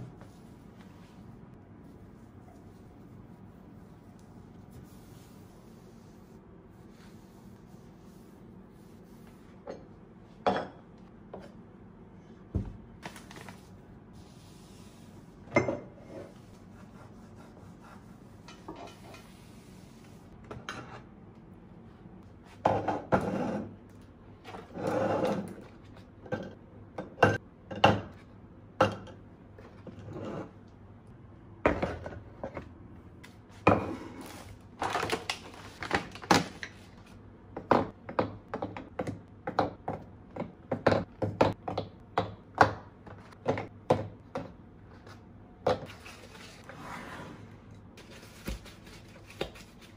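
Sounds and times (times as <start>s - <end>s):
cloth wiping countertop: 0.0s - 9.7s, 13.5s - 20.4s.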